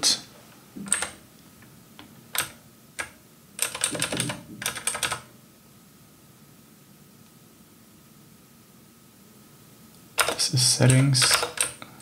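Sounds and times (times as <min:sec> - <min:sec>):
keyboard keystrokes: 0:00.9 - 0:01.2, 0:02.3 - 0:05.3, 0:10.2 - 0:11.8.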